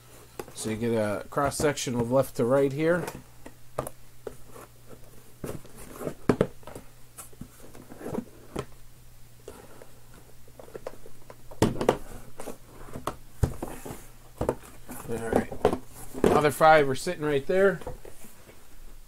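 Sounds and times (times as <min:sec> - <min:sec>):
cardboard boxes knocking and rustling: 0:03.8 - 0:08.7, 0:11.6 - 0:16.6.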